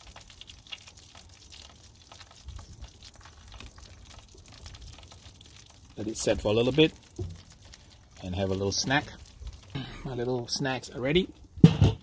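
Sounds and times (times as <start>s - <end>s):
chicken sizzling on a grill: 0.0s - 12.0s.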